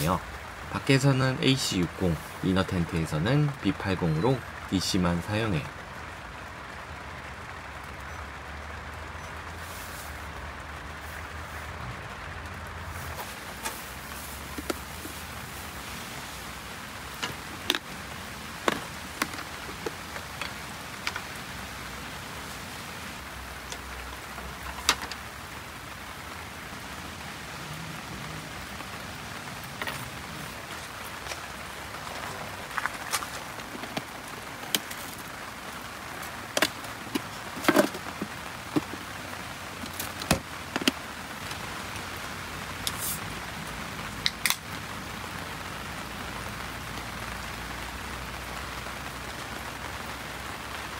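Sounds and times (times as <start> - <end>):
steady rain falling: 0.0 - 50.9
plastic lunch box clicks and knocks: 36.5 - 39.0.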